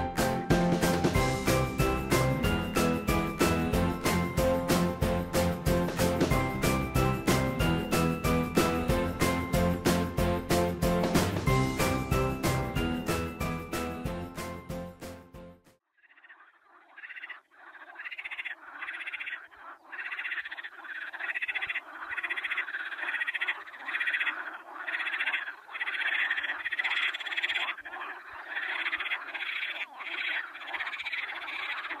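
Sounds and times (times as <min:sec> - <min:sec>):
frogs croaking chorus: 0:15.9 - 0:32.0.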